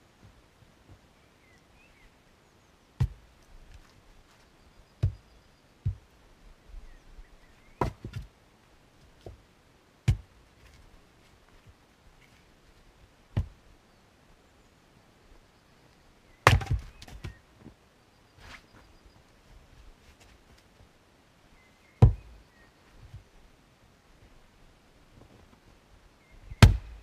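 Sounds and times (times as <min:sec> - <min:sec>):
axe splitting firewood: 0:16.4 - 0:17.4, 0:22.0 - 0:22.3, 0:26.6 - 0:27.0.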